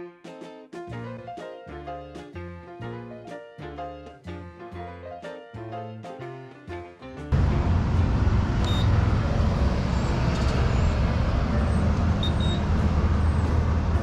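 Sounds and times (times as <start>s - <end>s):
road traffic rumble: 7.3s - 14.0s
high-pitched beeps: 8.6s - 8.9s, 12.2s - 12.6s.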